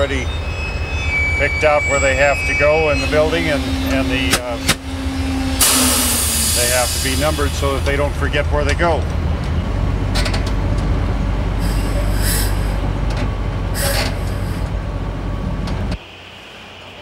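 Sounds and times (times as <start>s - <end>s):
crane engine rumbling: 0.0s - 17.0s
short air hisses: 5.6s - 7.7s, 11.6s - 12.8s, 13.8s - 14.7s.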